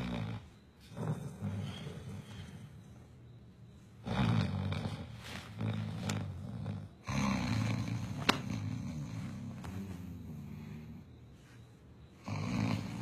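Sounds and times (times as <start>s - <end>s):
man snoring loudly: 0.0s - 2.5s, 4.0s - 11.0s, 12.2s - 13.0s.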